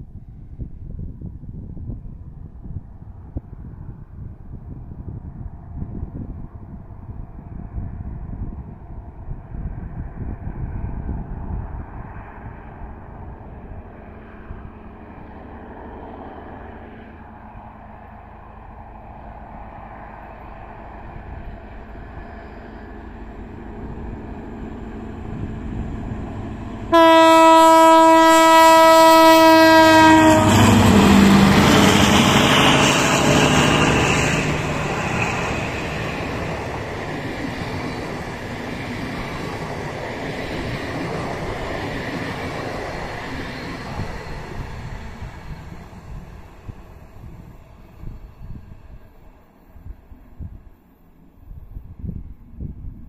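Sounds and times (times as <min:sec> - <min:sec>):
diesel locomotive engine: 0:00.0 - 0:52.8
train rolling past: 0:01.8 - 0:52.8
train horn blast: 0:26.9 - 0:32.4.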